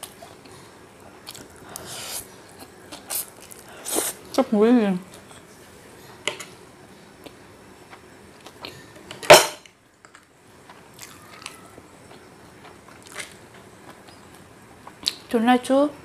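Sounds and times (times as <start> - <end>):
soft chewing: 0.0 - 4.4, 10.0 - 15.3.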